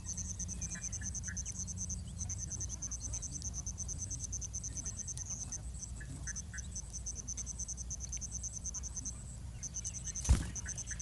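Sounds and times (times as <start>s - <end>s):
faint bird chirps: 0.0s - 11.0s
insect chirping rapidly: 0.0s - 11.0s.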